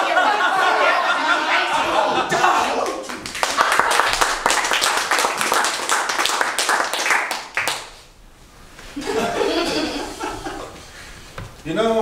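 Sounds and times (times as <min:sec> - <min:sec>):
voices: 0:00.0 - 0:03.2
small audience clapping: 0:02.4 - 0:08.2.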